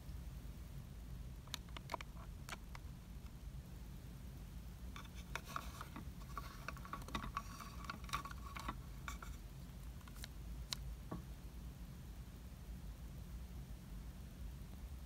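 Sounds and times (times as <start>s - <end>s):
plastic toy tray scraping: 5.0s - 9.4s.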